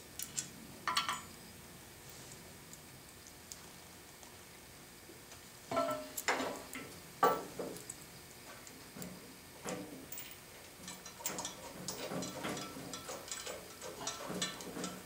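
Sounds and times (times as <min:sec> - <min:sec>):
steel bolts and bracket clinking: 0:10.8 - 0:15.0.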